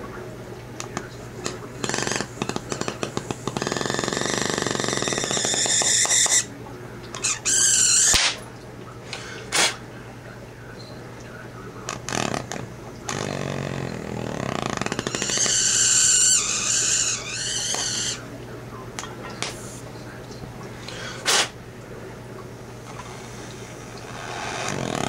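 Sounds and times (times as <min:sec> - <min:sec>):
torch hissing with a whistle: 0:03.6 - 0:06.5.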